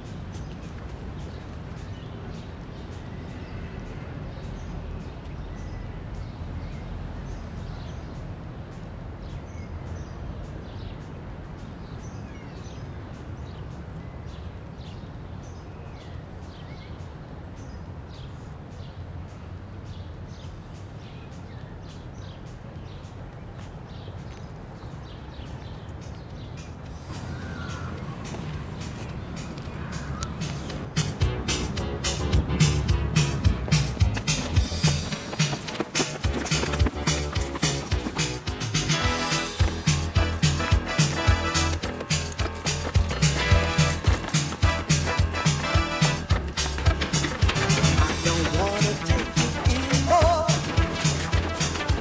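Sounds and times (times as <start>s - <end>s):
footsteps on paved path: 0.0s - 8.1s, 19.9s - 52.0s
steady low rumble: 26.9s - 52.0s
short bird calls: 27.0s - 30.8s.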